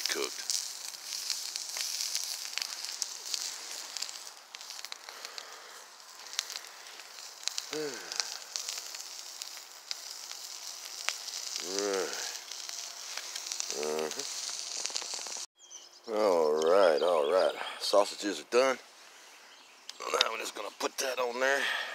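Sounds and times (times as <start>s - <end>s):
crackling pops: 0.0s - 15.5s, 19.8s - 21.2s
sausages sizzling on a griddle: 0.0s - 15.5s, 16.1s - 21.9s.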